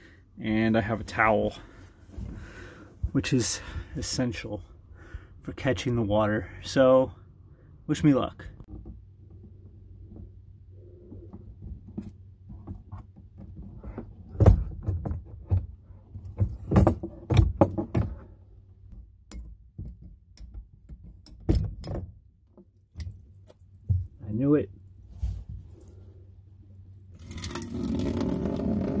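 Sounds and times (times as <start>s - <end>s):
clicks and knocks of pipe fittings: 18.9s - 24.3s.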